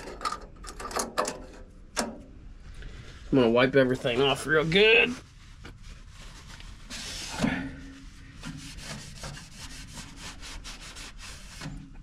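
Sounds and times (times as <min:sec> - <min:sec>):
cloth rag wiping metal: 0:02.9 - 0:12.0.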